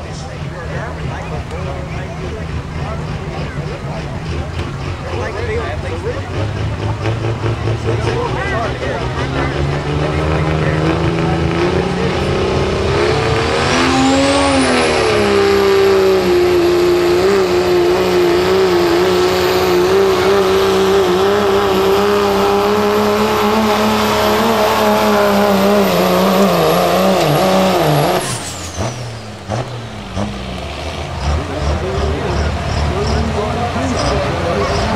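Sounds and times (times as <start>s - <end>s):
diesel truck engine at full throttle: 0.0s - 34.9s
high turbo whistle: 27.7s - 31.4s.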